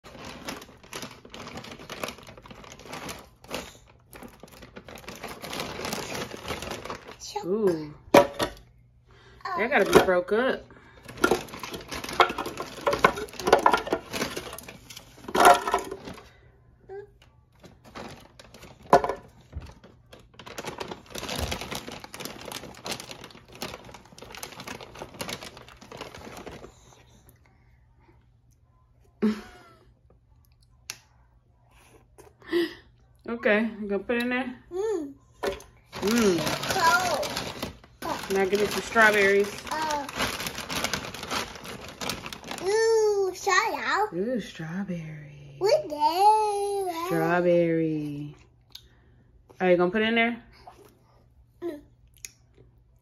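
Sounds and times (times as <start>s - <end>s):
plastic bag crinkling: 0.0s - 7.6s, 10.8s - 17.0s, 17.6s - 27.0s, 35.4s - 43.9s.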